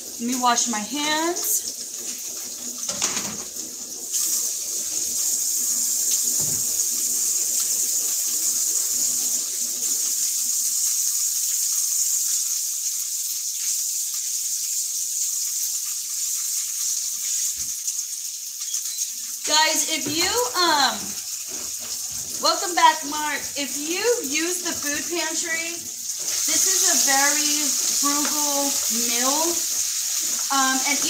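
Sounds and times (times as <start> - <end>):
tap running: 6.3 - 6.9, 19.0 - 31.0
hands washing under water: 19.4 - 25.4.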